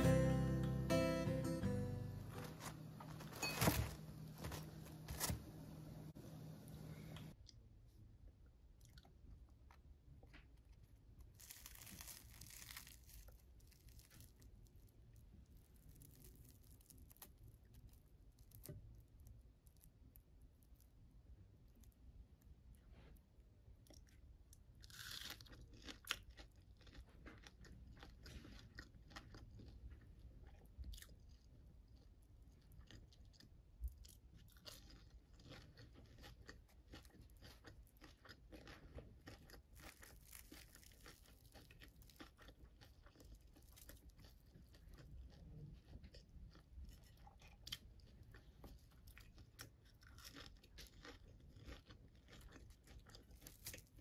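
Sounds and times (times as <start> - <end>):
crisp fritters crackling: 11.2 - 21.0, 33.9 - 45.4, 46.1 - 54.0.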